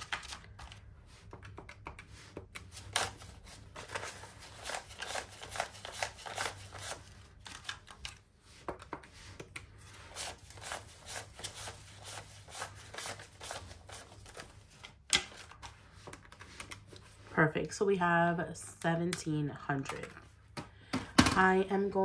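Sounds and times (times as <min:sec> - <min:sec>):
banknotes flicking and rustling: 0:00.0 - 0:17.3.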